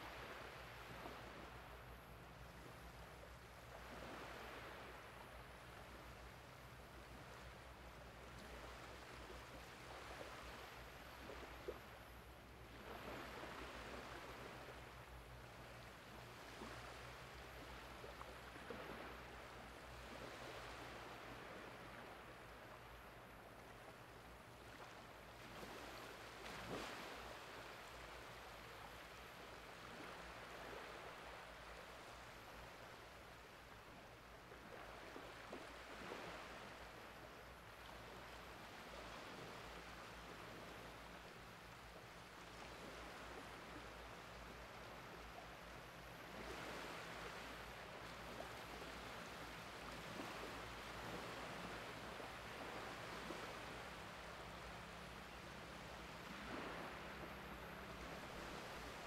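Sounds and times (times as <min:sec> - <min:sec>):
faint waves washing onto beach: 0:00.0 - 0:59.0.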